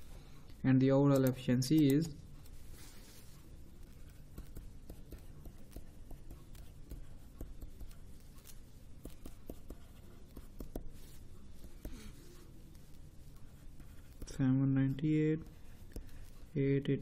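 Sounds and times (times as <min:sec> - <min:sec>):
low steady hum: 0:00.0 - 0:17.0
stylus tapping on tablet: 0:04.3 - 0:08.0, 0:08.9 - 0:11.0.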